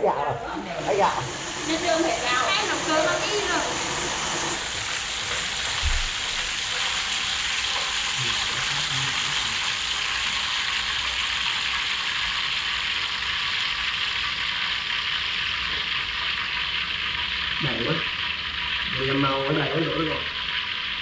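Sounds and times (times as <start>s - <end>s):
chicken deep-frying in oil: 0.8s - 21.0s.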